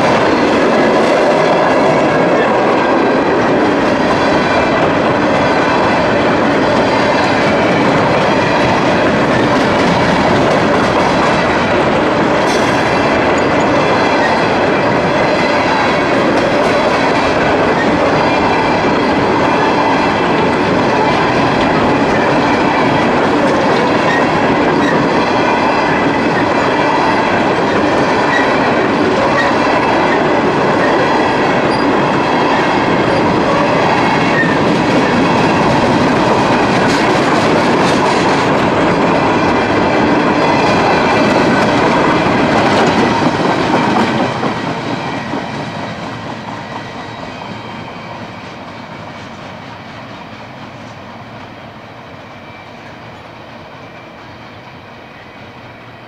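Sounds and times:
train cars rolling on rails: 0.0s - 56.0s.

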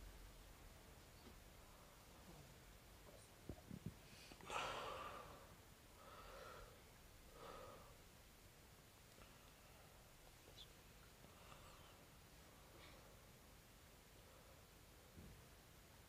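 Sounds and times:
person breathing: 4.0s - 8.0s, 11.2s - 13.4s.

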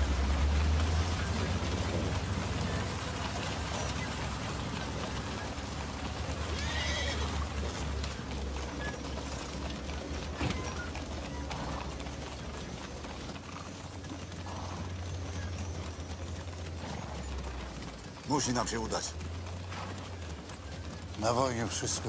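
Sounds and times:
horse hooves clopping: 0.0s - 22.0s
horse whinnying: 3.4s - 9.5s, 13.6s - 15.6s, 16.6s - 18.0s.

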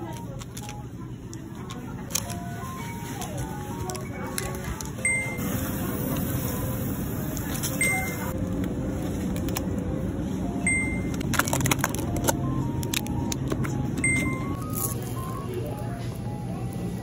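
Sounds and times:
packages clicking: 0.0s - 2.4s, 11.1s - 15.0s
soft background music: 0.0s - 17.0s
supermarket hum: 0.0s - 17.0s.

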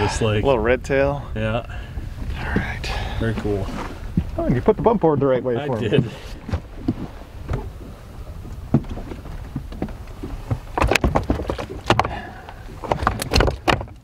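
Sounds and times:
steady low rumble: 0.0s - 10.8s
fish knocking on wooden board: 8.7s - 14.0s.

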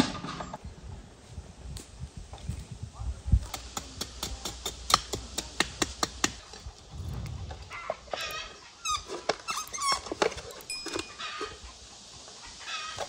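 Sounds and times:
chickens clucking: 6.4s - 9.5s, 10.1s - 13.0s.

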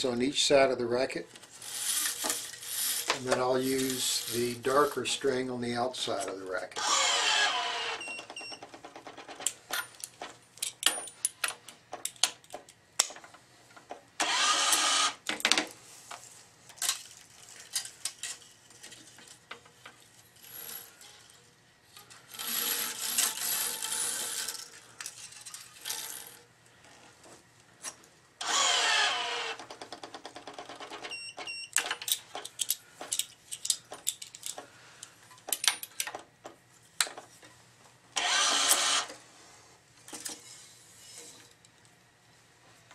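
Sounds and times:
string pulled through racket frame: 22.2s - 24.8s.

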